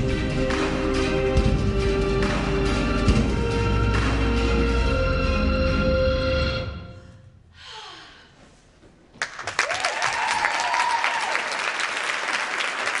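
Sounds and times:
performance music: 0:00.0 - 0:07.5
audience applause: 0:09.2 - 0:13.0
high cheer: 0:09.4 - 0:13.0.

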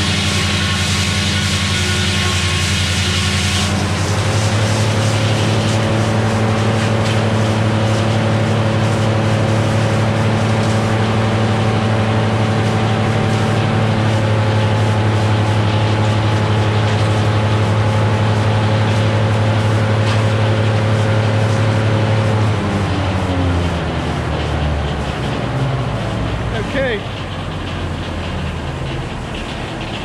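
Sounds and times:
diesel engine running: 0:00.0 - 0:30.0.

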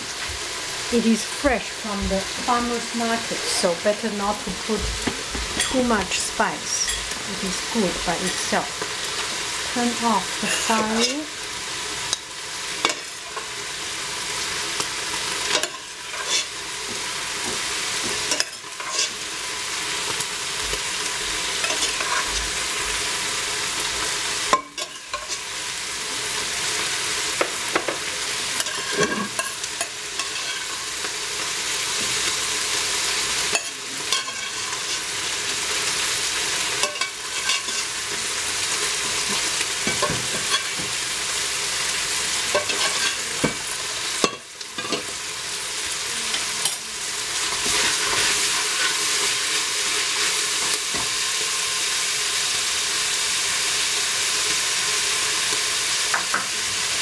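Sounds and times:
mushrooms sizzling in a pot: 0:00.0 - 0:57.0
metal spoon scraping a pot: 0:15.5 - 0:16.6, 0:18.2 - 0:19.2, 0:21.6 - 0:22.6, 0:24.5 - 0:25.4, 0:28.6 - 0:30.9, 0:33.5 - 0:35.1, 0:36.8 - 0:38.0, 0:42.5 - 0:43.3.

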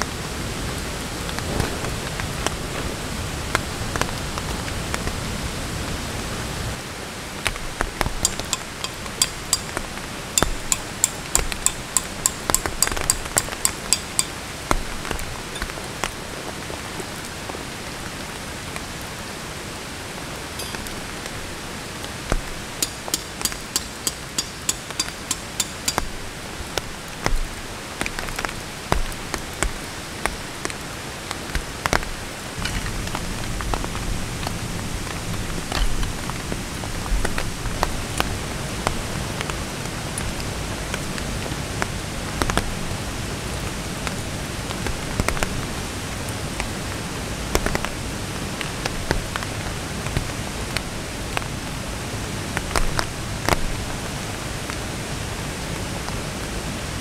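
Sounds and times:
steady rain hiss: 0:00.0 - 0:57.0
metal tent pegs hammered: 0:08.2 - 0:09.8, 0:10.4 - 0:14.4, 0:20.6 - 0:21.0, 0:22.8 - 0:26.3.

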